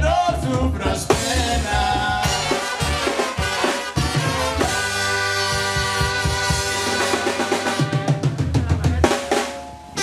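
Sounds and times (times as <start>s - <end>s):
drum kit: 0.0s - 10.0s
trumpets and saxophones: 1.1s - 8.6s.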